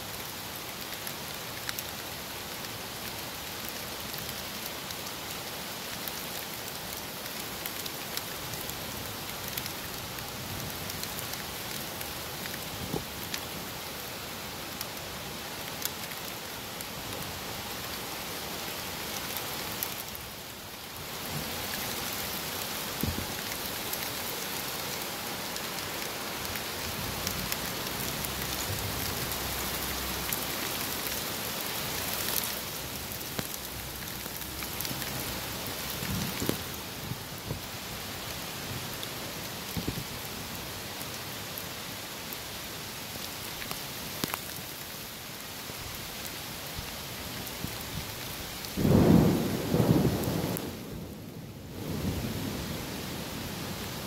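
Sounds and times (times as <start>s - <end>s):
rain falling on leaves: 0.0s - 54.0s
sharp raindrop hits: 48.8s - 52.0s.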